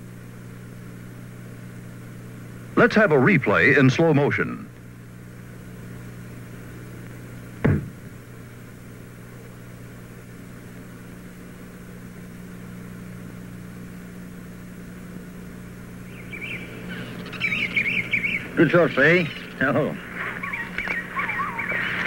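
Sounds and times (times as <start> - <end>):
steady electrical hum: 0.0 - 22.0
sharp knock: 7.6 - 8.0
birds chirping: 16.0 - 22.0.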